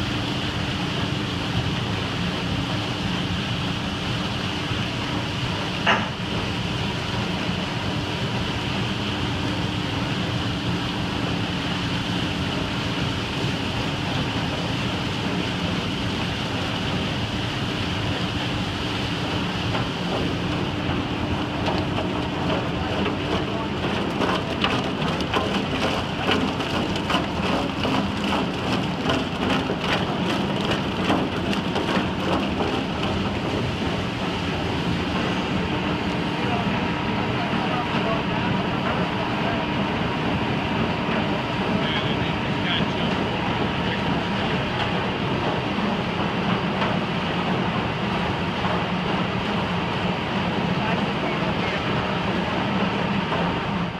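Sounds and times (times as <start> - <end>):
machinery humming: 0.0 - 53.9
fish clattering down a chute: 21.2 - 35.4.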